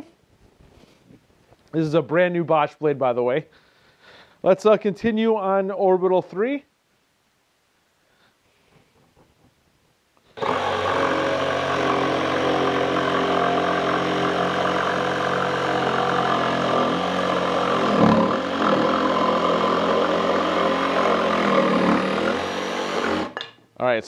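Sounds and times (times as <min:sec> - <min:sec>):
jigsaw motor buzzing: 0:10.4 - 0:23.4.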